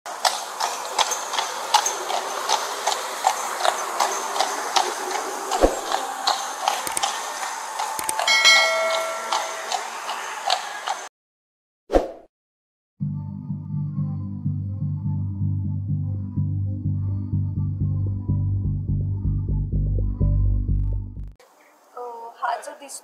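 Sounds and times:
hooves clip-clopping on brick: 0.2s - 11.0s
ringing chime: 8.2s - 10.0s.

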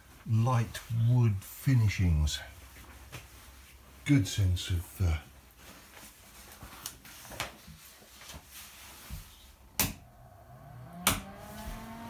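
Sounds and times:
extractor fan humming: 9.7s - 12.0s.

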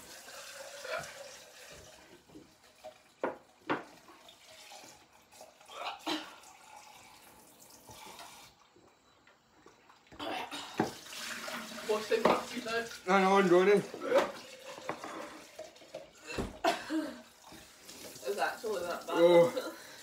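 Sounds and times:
tap running into a sink: 1.7s - 4.2s, 10.8s - 12.8s.

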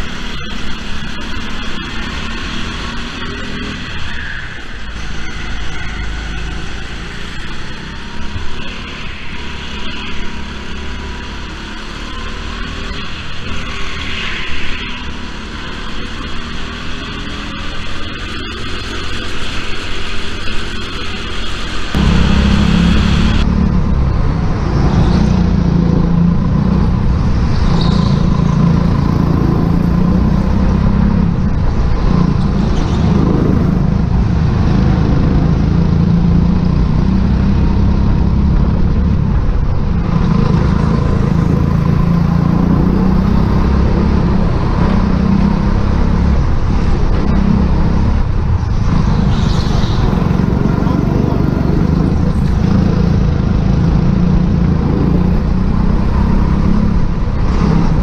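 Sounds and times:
go-kart engines: 0.0s - 58.0s
deep engine sound: 20.5s - 58.0s.

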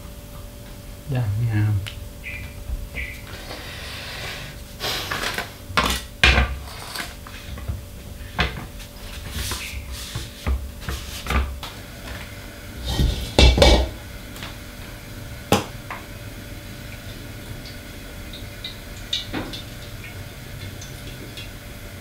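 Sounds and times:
faint steady hum: 0.0s - 22.0s
cookware clattering on a countertop: 12.9s - 14.0s.

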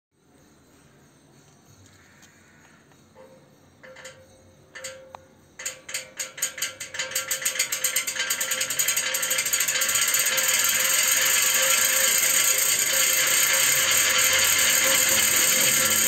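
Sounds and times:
ceiling fan ticking rattle: 3.6s - 16.0s
fan motor whine: 6.4s - 16.0s.

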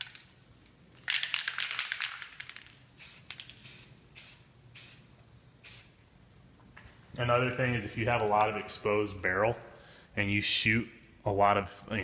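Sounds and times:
faint crickets chirping: 0.0s - 12.0s
spray can ball rattling: 1.0s - 6.0s
spray paint hissing: 2.0s - 6.0s.

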